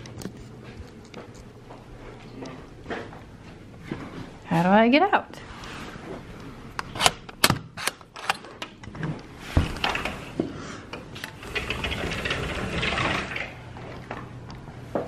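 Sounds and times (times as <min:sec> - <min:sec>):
door rattling in its frame: 0:11.4 - 0:13.6.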